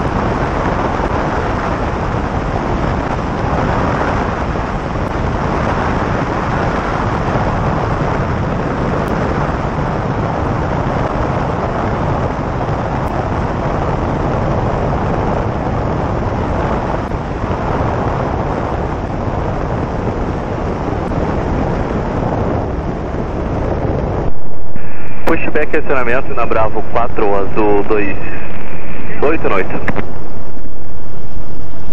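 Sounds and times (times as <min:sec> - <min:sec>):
light plane engine drone: 0:00.0 - 0:31.9
rushing air: 0:24.2 - 0:31.9.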